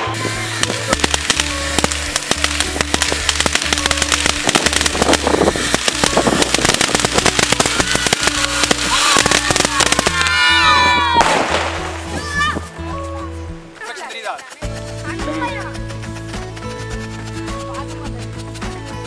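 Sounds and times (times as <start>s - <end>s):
firework crackling pops: 0.0s - 12.7s
background music: 0.0s - 19.0s.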